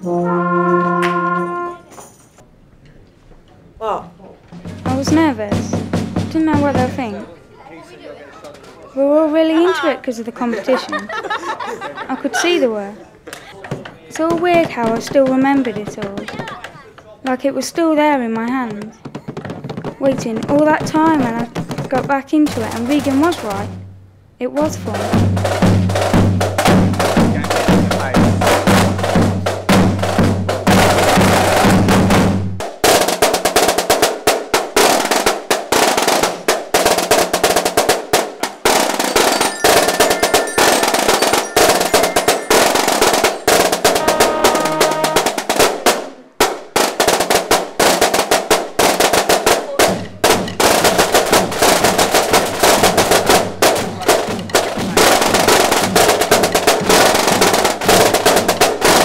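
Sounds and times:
glockenspiel notes: 0:00.0 - 0:02.1, 0:38.9 - 0:45.2
snare drums playing rolls: 0:00.1 - 0:01.8, 0:04.4 - 0:07.3, 0:18.2 - 0:24.0, 0:24.6 - 0:59.0.

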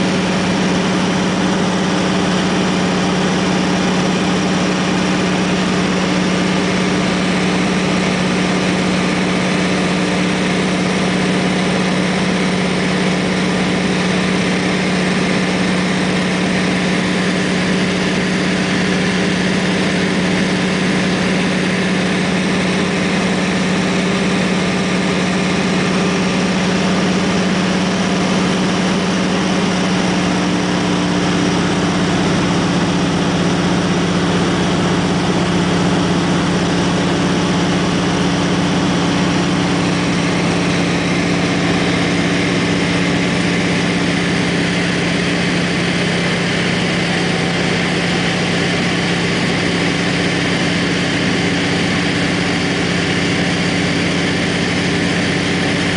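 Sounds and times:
plane engine and propeller drone: 0:00.0 - 0:55.9.

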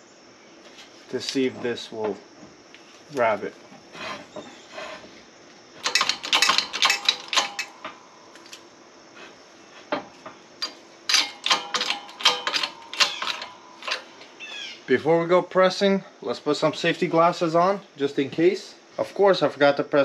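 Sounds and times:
metal parts clinking: 0:05.8 - 0:08.7, 0:10.6 - 0:14.3.

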